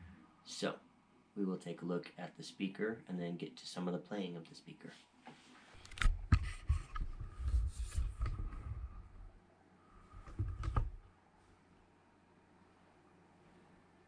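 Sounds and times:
camera handling bumps and rubbing: 0:05.8 - 0:08.6.

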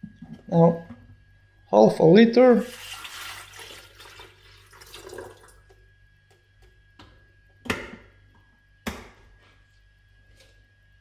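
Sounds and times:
water pouring into kettle: 0:02.6 - 0:05.7.

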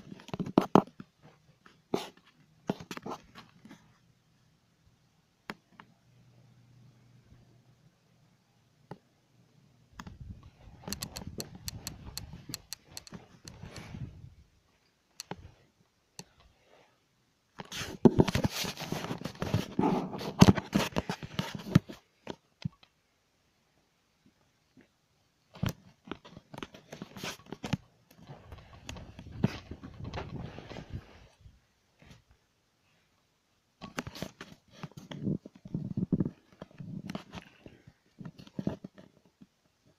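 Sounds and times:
camera handling rustle: 0:10.0 - 0:14.2, 0:17.6 - 0:22.4.

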